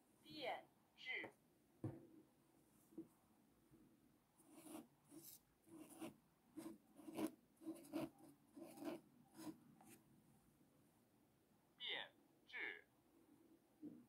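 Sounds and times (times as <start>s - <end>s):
marker writing on paper: 4.5s - 10.0s.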